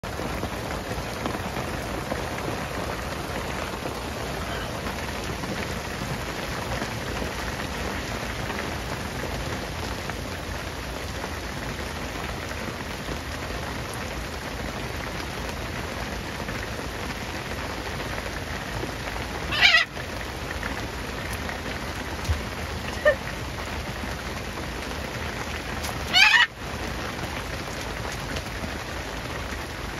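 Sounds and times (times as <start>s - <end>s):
rain on boat deck and water: 0.0s - 29.9s
macaw squawk: 19.5s - 19.9s, 26.1s - 26.5s.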